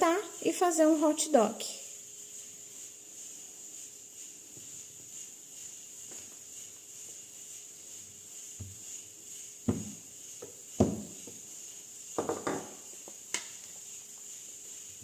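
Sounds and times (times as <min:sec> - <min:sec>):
insects chirring: 0:00.0 - 0:15.0
dough thumping on table: 0:09.7 - 0:10.0, 0:10.8 - 0:11.2.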